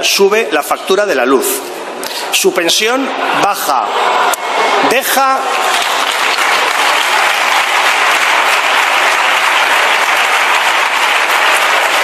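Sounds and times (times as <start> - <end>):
crowd applauding: 4.3 - 12.0.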